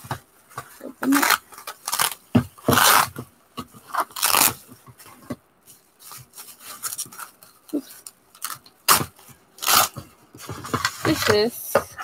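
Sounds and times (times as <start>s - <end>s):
bubble wrap crinkling: 0.8s - 3.2s, 3.8s - 4.7s, 5.8s - 11.5s.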